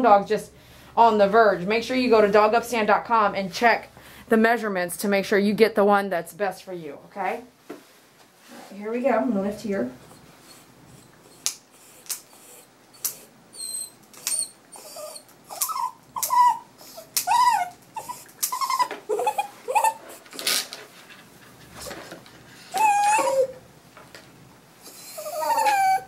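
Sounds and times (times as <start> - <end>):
dog whining: 10.0 - 20.2, 22.7 - 23.6, 24.8 - 26.0.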